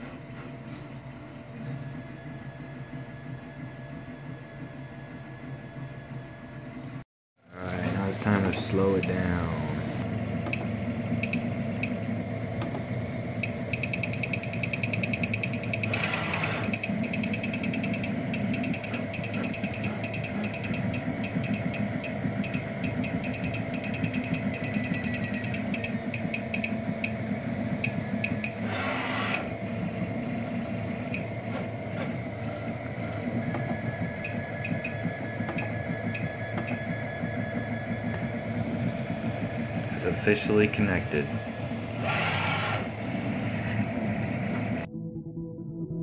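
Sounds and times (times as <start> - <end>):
three d printer humming: 0.0 - 44.9
stepper motor buzzes: 7.6 - 44.9.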